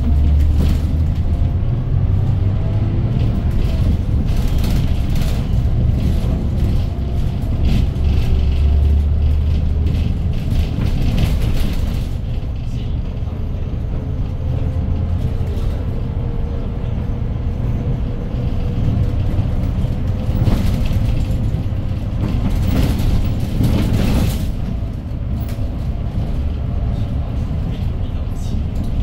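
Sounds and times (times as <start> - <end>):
bus engine and road rumble: 0.0 - 29.0.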